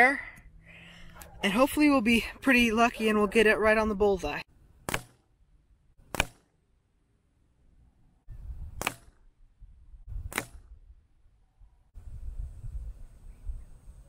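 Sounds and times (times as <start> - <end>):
air rifle shots: 4.8 - 5.3, 6.0 - 6.6, 8.8 - 9.3, 10.3 - 10.8.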